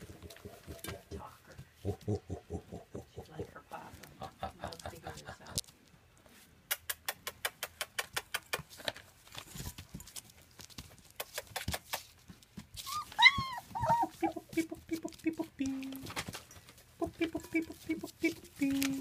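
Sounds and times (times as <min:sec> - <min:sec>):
puppy whining cry: 0:12.8 - 0:14.6
puppy whimpers: 0:12.8 - 0:14.8.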